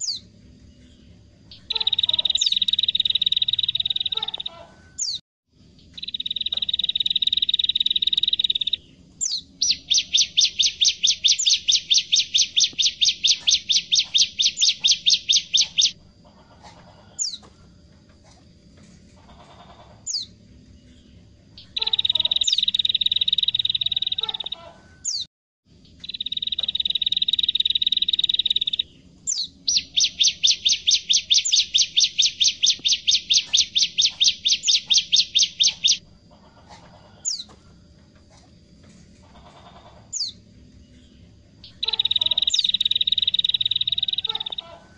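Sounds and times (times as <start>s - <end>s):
bird singing buzzy trills: 0.0s - 17.9s, 18.7s - 37.9s, 38.8s - 44.9s
bird sharp repeated notes: 1.5s - 5.2s, 5.8s - 16.0s, 21.6s - 25.3s, 25.9s - 36.0s, 41.6s - 44.8s.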